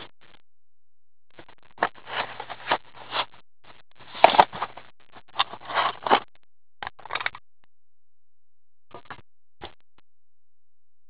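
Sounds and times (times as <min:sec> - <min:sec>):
cardboard scraping: 0:01.8 - 0:03.3, 0:04.0 - 0:04.8, 0:05.4 - 0:06.2.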